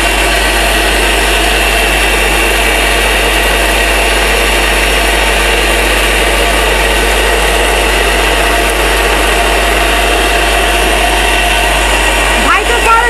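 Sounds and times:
mixer grinder motor grinding: 0:00.0 - 0:13.0.

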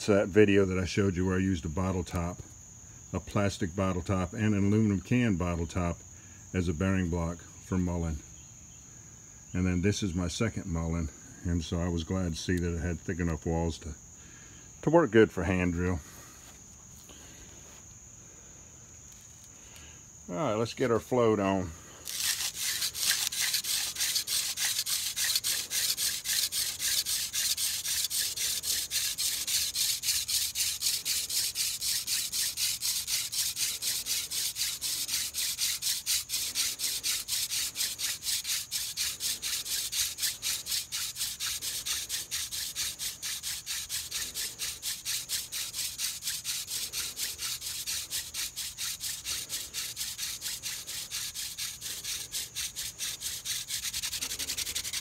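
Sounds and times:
rasping rub of wood on wood: 0:22.0 - 0:55.0.

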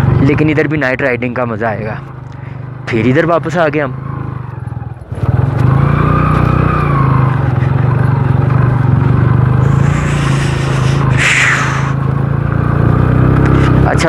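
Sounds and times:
motorcycle engine running: 0:01.7 - 0:14.0
burst of hiss: 0:09.6 - 0:12.0.

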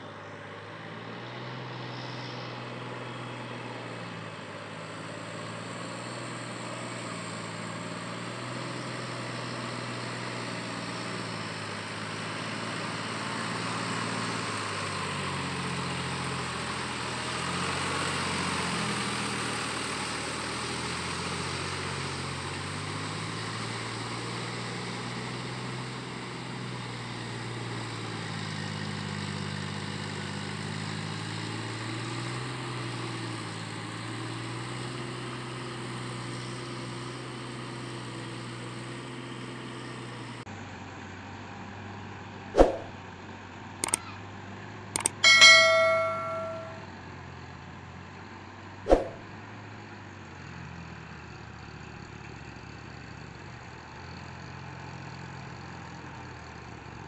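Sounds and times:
short ringing ding: 0:42.6 - 0:42.9, 0:45.0 - 0:46.8, 0:48.9 - 0:49.2
sharp clicks: 0:45.0 - 0:45.4.

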